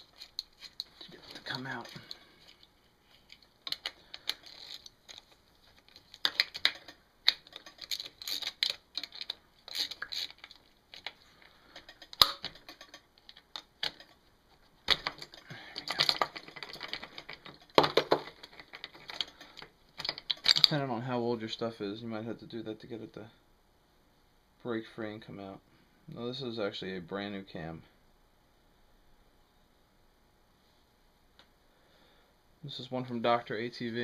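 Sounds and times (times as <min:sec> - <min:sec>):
metallic clicking and scraping: 0:00.0 - 0:20.8.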